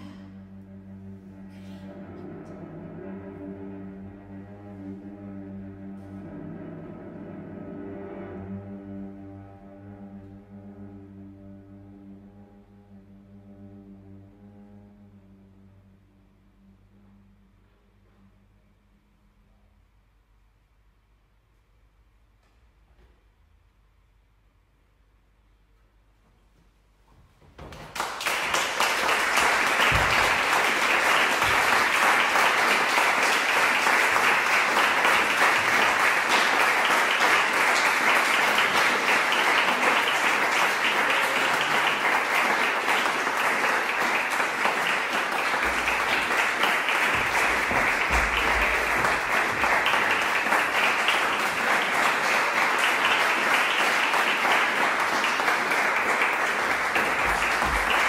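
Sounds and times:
audience applauding: 0:27.6 - 0:58.0.

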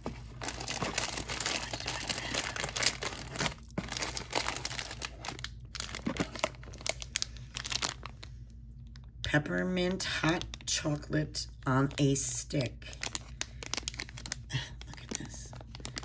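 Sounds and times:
rustling shredded paper filler: 0:00.0 - 0:08.4
cellophane crinkling: 0:00.0 - 0:09.1, 0:12.8 - 0:16.0.

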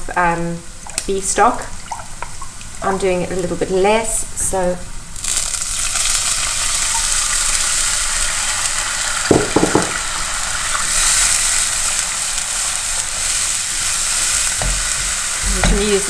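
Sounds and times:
stock sizzling in hot oil: 0:05.2 - 0:16.0
knocks: 0:09.3 - 0:10.0.

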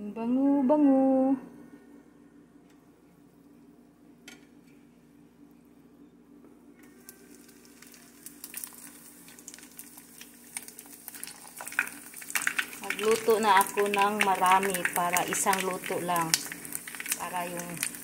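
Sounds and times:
low steady hum: 0:00.0 - 0:18.0
fish sizzling in oil: 0:06.9 - 0:18.0.

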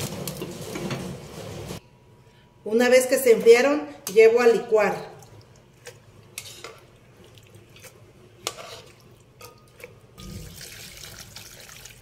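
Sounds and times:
water dripping: 0:09.8 - 0:12.0.

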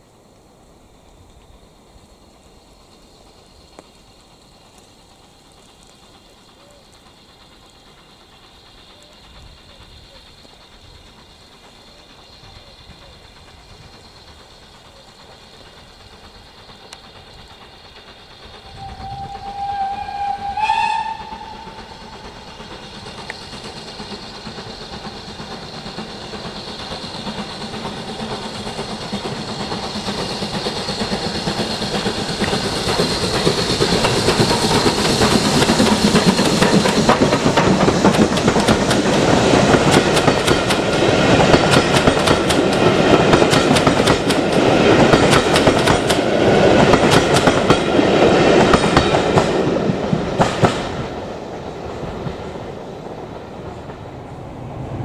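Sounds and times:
steam locomotive approaching: 0:00.0 - 0:55.0
wheels clacking over rail joints: 0:14.9 - 0:51.3
steam whistle: 0:18.6 - 0:22.5.

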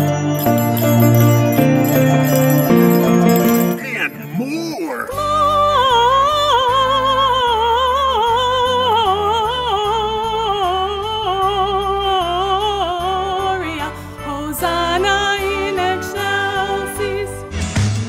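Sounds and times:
sustained instrumental accompaniment: 0:00.0 - 0:05.7.

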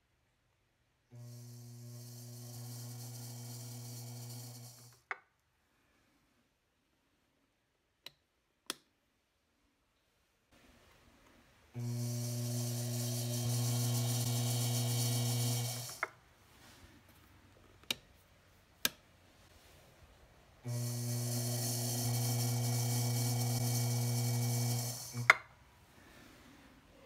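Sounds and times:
potter's wheel motor humming: 0:01.2 - 0:05.0, 0:11.8 - 0:16.1, 0:20.6 - 0:25.5.

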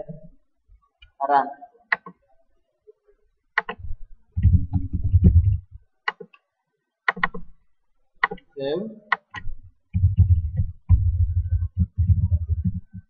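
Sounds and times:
computer mouse clicks: 0:01.9 - 0:02.2, 0:03.6 - 0:06.4, 0:07.1 - 0:07.5, 0:08.2 - 0:08.5.

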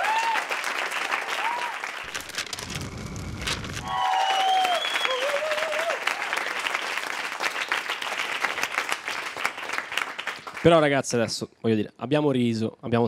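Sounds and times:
cheering whoops: 0:00.0 - 0:02.1, 0:03.8 - 0:06.6
audience applauding: 0:00.0 - 0:10.8.

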